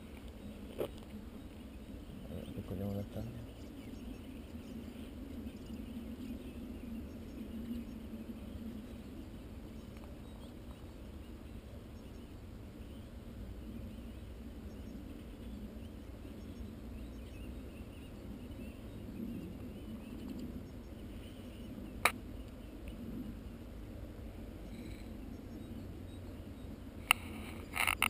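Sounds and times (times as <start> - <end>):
wind rumble: 0.0 - 28.0
camera handling noise: 27.1 - 28.0.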